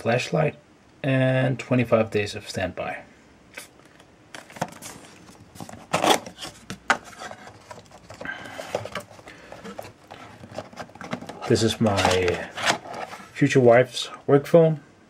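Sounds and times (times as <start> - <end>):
cardboard rubbing and scraping: 4.5 - 13.4.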